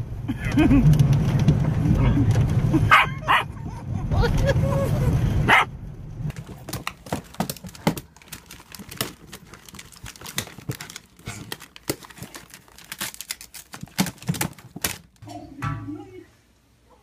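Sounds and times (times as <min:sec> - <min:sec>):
plastic bag rustling: 0:06.3 - 0:15.2.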